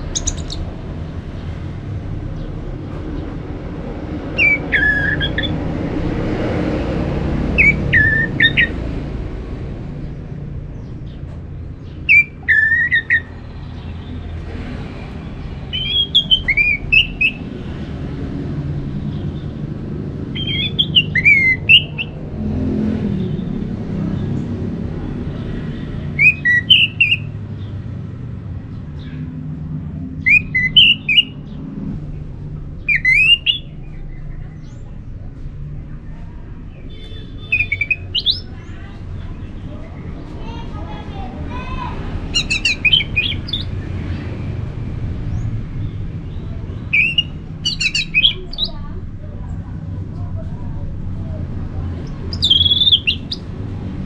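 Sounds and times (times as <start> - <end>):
thrush singing: 0.0 - 2.0, 12.0 - 24.0, 36.6 - 50.4, 51.4 - 54.0.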